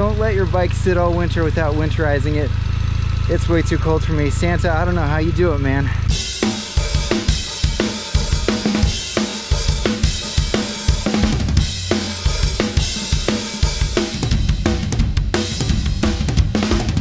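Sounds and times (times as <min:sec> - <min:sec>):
intro music with drum beat: 0:06.1 - 0:17.0.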